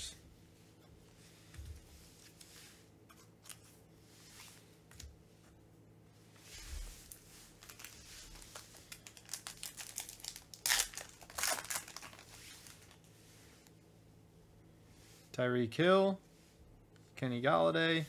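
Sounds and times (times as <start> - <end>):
foil pack crinkling and tearing: 7.1 - 13.0.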